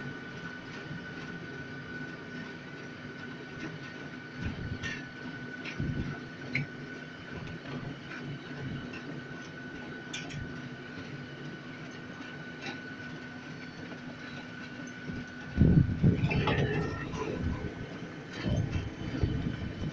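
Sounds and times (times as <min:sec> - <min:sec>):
train hum: 0:00.0 - 0:19.9
high whine: 0:14.8 - 0:19.9.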